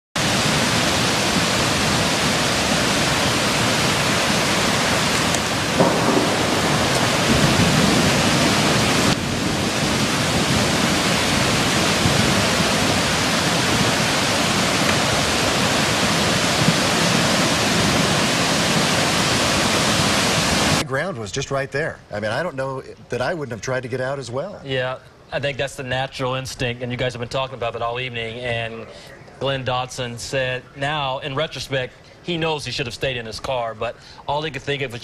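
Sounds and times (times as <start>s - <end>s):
rushing flood water: 0.2s - 20.9s.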